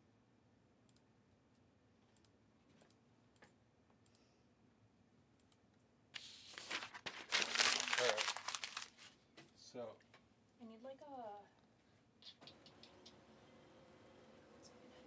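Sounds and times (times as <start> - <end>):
plastic packaging crinkling: 6.2 - 9.2.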